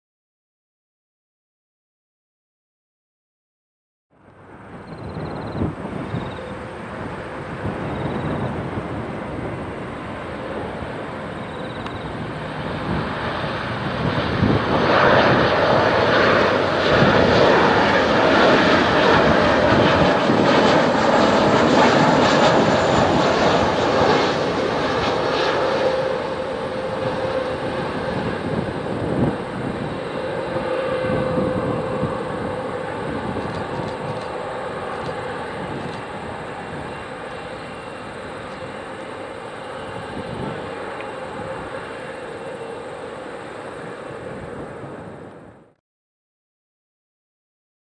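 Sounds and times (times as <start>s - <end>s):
jet engines passing: 4.2s - 45.8s.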